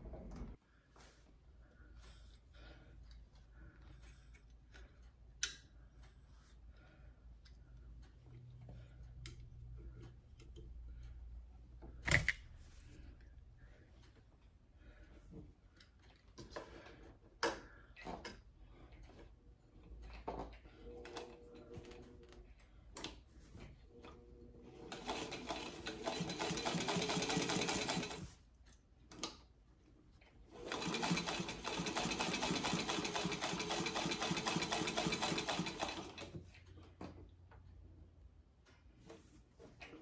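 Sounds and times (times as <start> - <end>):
sewing machine stitching: 24.8 - 28.4, 30.5 - 36.4.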